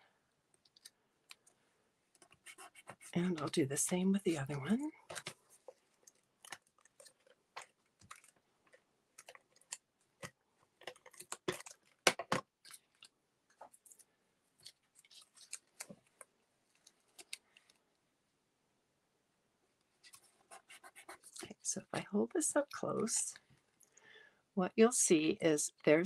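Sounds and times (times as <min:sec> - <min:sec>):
paper rustling: 0:10.8 - 0:17.8.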